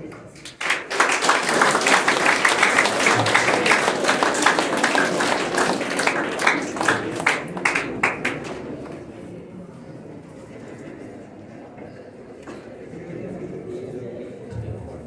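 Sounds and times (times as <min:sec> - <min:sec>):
audience applauding: 0:00.4 - 0:09.0.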